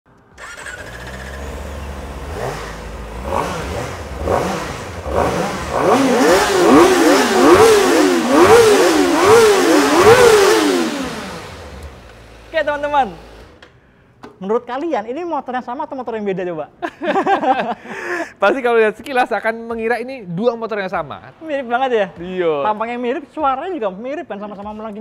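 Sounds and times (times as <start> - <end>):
motorcycle engines revving: 0.4 - 13.6.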